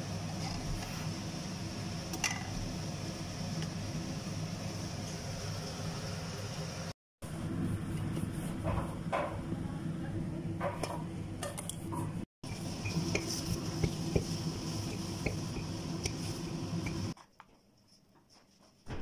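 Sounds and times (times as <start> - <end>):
steady low hum: 12.0 - 17.2.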